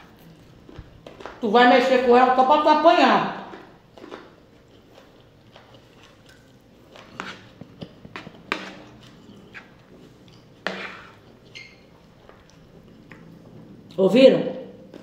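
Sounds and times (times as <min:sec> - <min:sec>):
chewing: 0:03.5 - 0:14.0
metal spoon scraping a plate: 0:10.6 - 0:11.8.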